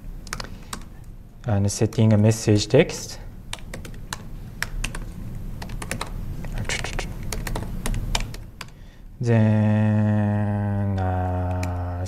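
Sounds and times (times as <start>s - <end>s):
laptop keyboard typing: 0.2s - 1.0s, 3.5s - 8.8s, 11.0s - 12.0s.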